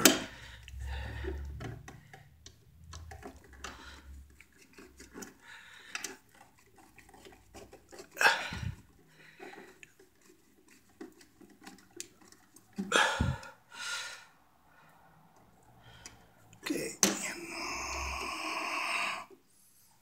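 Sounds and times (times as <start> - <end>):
screwdriver metal clicks and scrapes: 1.5 - 8.2.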